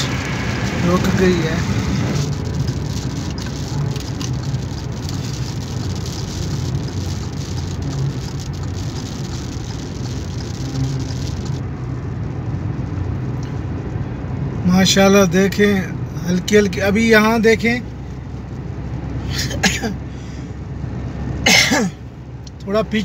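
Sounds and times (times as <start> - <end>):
car road and wind noise: 0.0 - 23.0
raindrops ticking on glass: 2.3 - 11.6.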